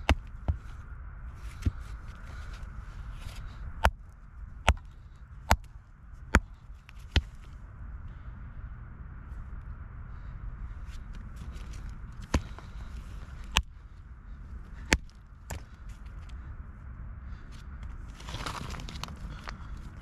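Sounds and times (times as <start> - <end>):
hammer striking rock: 0.0 - 0.6, 3.8 - 4.0, 4.6 - 5.7, 6.3 - 7.4, 13.5 - 13.8, 14.8 - 15.7.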